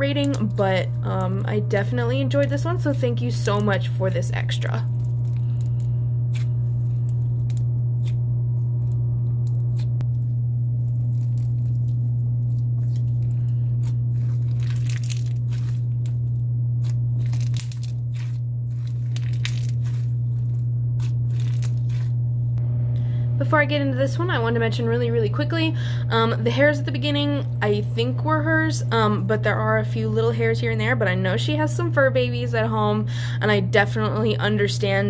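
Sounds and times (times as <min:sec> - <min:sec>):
steady low hum: 0:00.0 - 0:35.0
beads crackling and popping in slime: 0:10.8 - 0:16.2, 0:16.8 - 0:22.1.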